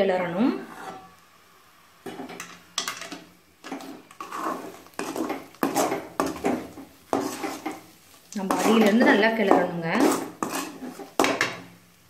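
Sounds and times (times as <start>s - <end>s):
metal ladle scraping a metal pan: 0.6s - 1.2s, 2.0s - 7.8s, 8.4s - 11.5s.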